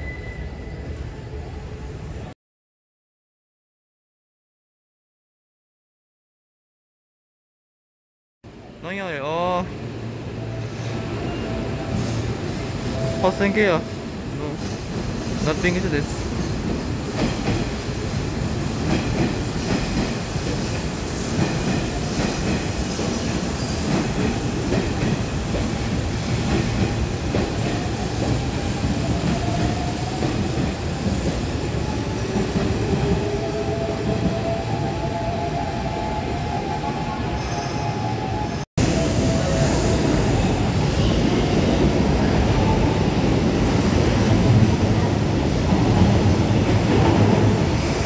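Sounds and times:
train wheels rumbling on rails: 0:10.8 - 0:48.0.

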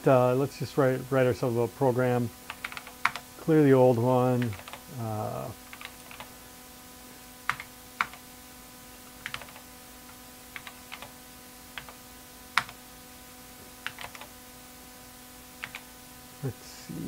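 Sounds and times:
faint steady hum: 0:00.0 - 0:17.0
computer keyboard keystrokes: 0:02.5 - 0:03.2, 0:07.5 - 0:08.2, 0:09.2 - 0:09.6, 0:13.8 - 0:14.3, 0:15.6 - 0:15.9.

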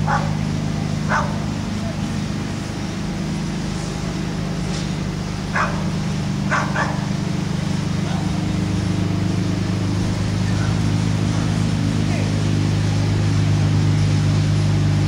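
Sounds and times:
dog barking: 0:00.0 - 0:00.4, 0:01.0 - 0:01.5, 0:05.5 - 0:07.1
low mechanical hum: 0:00.0 - 0:15.0.

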